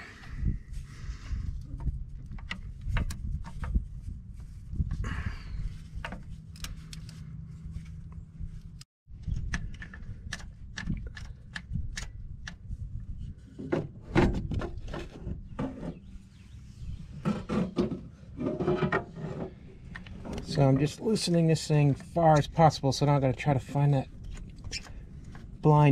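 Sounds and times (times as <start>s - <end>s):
low handling rumble: 14.7s - 25.9s.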